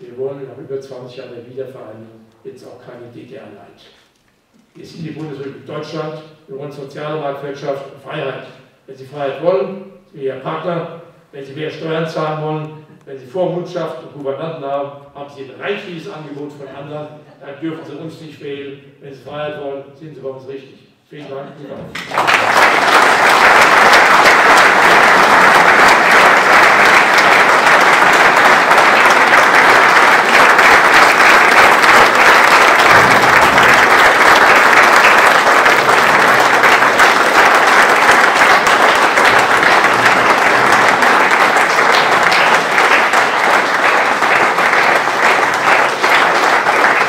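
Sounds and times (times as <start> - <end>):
audience applauding: 21.9 - 47.0.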